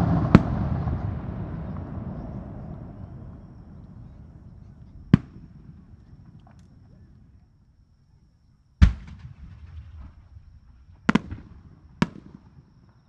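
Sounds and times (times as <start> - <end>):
firework bang: 0.0 - 5.9, 8.8 - 12.6
rumble of firework bursts: 0.0 - 8.0, 8.7 - 13.0.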